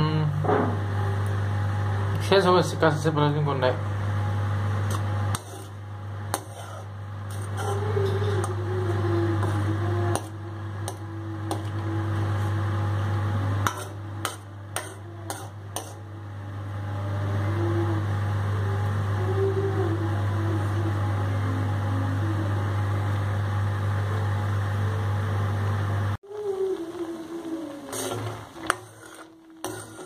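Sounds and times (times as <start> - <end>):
low hum: 0.2 - 30.0
food simmering: 26.2 - 30.0.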